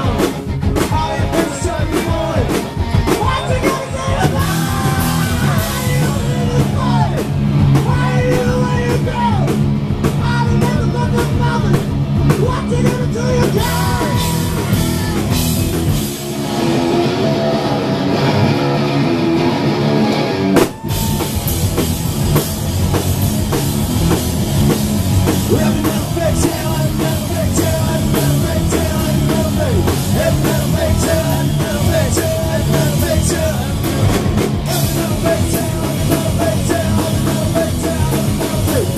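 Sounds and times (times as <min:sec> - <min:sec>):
person singing: 0:00.0 - 0:09.5, 0:12.4 - 0:15.5, 0:25.4 - 0:38.9
distorted electric guitar: 0:00.0 - 0:38.9
drum kit: 0:00.0 - 0:38.9.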